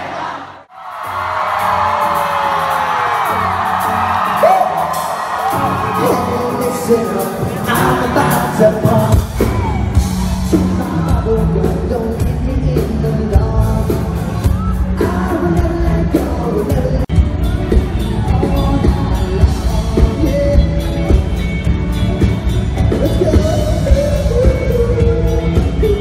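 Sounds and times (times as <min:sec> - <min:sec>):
pop-punk band playing live: 0:00.8 - 0:26.0
lead vocalist singing: 0:05.5 - 0:21.5, 0:22.2 - 0:26.0.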